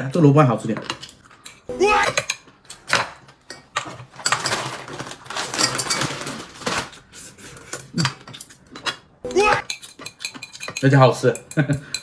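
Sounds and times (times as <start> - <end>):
chopsticks clicking against bowls: 9.6 - 12.0.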